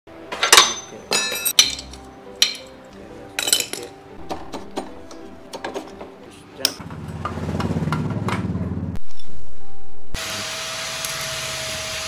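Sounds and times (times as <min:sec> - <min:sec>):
metal clinking and knocking: 0:00.3 - 0:08.5.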